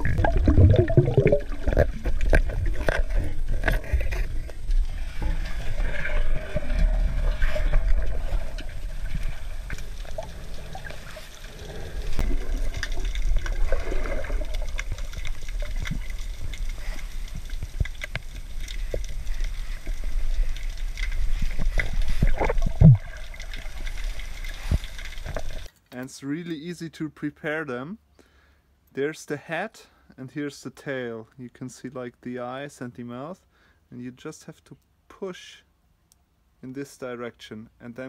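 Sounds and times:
underwater rumble of moving water: 0:00.0 - 0:25.7
water gurgling: 0:00.0 - 0:25.7
small underwater clicks and crackles: 0:00.0 - 0:26.1.

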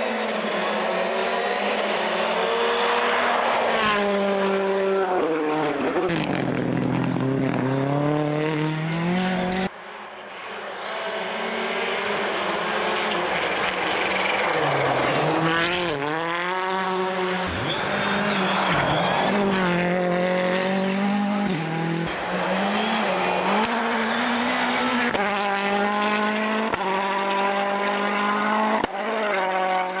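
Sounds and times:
rally car engines at full throttle: 0:00.0 - 0:30.0.

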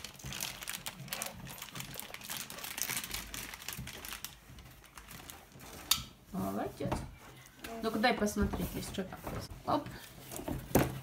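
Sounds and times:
plastic bags crinkling: 0:00.0 - 0:06.2.

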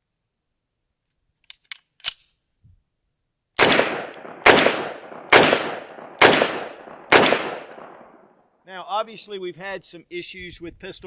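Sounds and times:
pistol shots echoing: 0:03.6 - 0:08.4.

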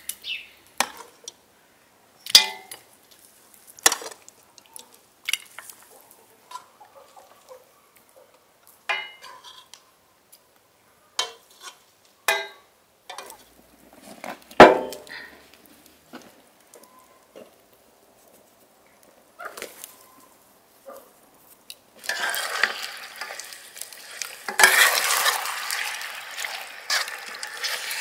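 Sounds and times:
metal spoon scraping a steel pan: 0:22.0 - 0:23.5, 0:24.4 - 0:25.4.

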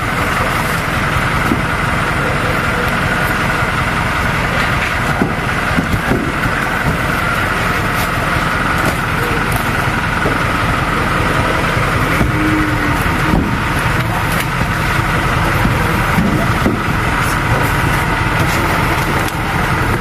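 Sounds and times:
motor running: 0:00.0 - 0:20.0.

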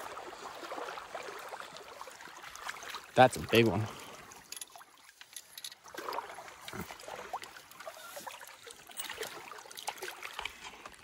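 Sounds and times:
river water splashing: 0:00.0 - 0:11.0.

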